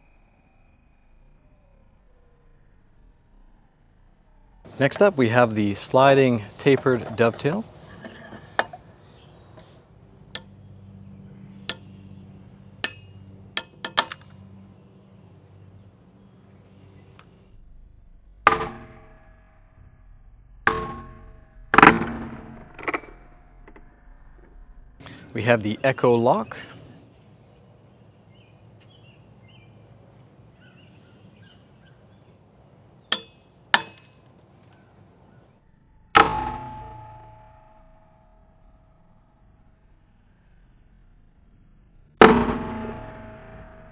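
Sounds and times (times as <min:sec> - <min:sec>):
joint snapping: 0:12.8 - 0:14.4
ringing tone: 0:36.1 - 0:38.7.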